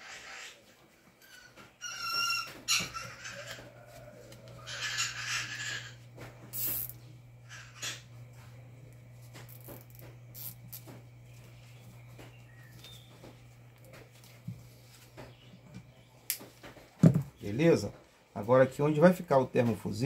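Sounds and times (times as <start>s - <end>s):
parrot squawk: 0.0s - 3.7s, 4.6s - 6.0s, 7.5s - 8.0s
steady low hum: 2.5s - 20.0s.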